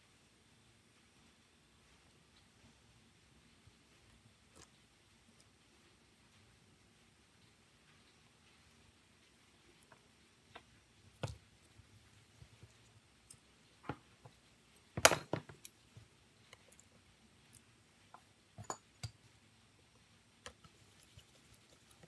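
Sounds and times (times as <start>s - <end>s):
small metal tools clicking and tapping: 17.5s - 19.2s.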